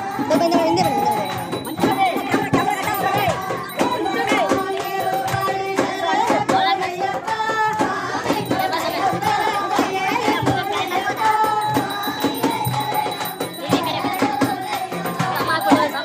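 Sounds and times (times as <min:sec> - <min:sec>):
percussion beat: 0:00.0 - 0:16.0
person singing devotional song: 0:00.0 - 0:16.0.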